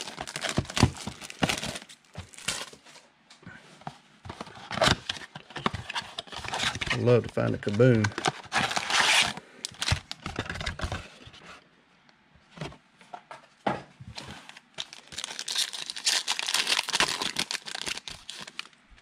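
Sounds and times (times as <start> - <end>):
foil wrapper tearing and crinkling: 0.0 - 2.8, 14.8 - 18.8.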